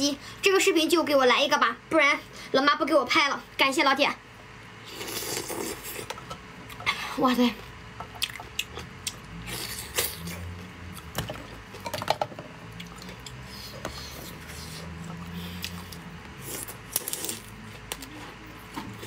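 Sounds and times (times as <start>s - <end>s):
chewing: 12.7s - 19.0s.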